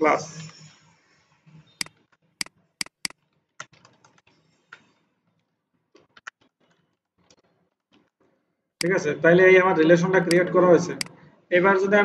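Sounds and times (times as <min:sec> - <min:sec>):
keyboard typing: 0:01.8 - 0:08.2.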